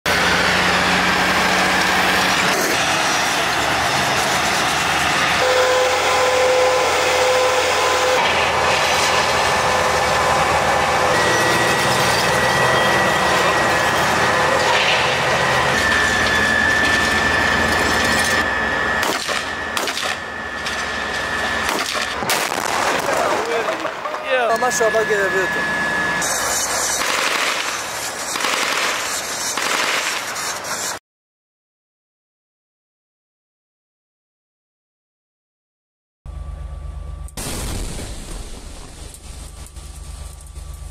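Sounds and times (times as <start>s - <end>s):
tracked vehicles running: 0.1s - 31.0s
thin high whine: 4.4s - 22.2s, 23.2s - 31.0s, 38.7s - 40.9s.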